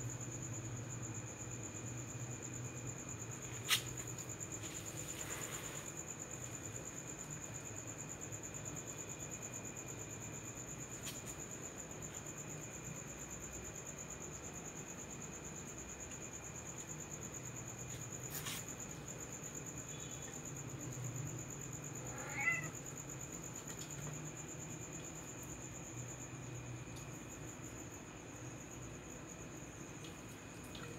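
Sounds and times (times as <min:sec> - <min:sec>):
crickets trilling: 0:00.0 - 0:30.9
cat meowing: 0:22.0 - 0:22.8.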